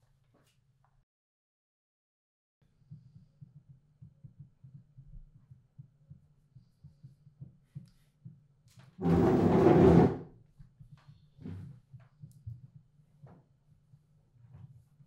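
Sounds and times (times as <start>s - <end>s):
wooden chair scraping floor: 9.0s - 10.2s.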